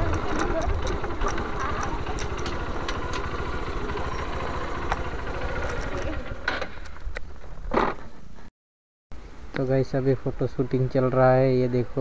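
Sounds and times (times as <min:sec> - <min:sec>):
motorcycle engine running: 0:00.0 - 0:06.8.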